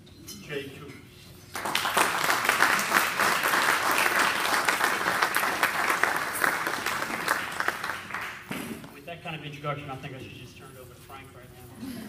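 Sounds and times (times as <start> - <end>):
audience applauding: 1.5 - 8.5.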